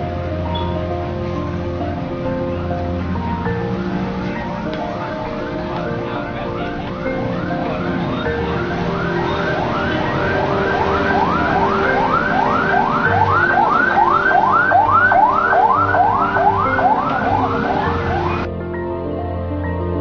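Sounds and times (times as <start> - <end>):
background music: 0.0 - 20.0
siren-like rising whoop: 7.4 - 18.5.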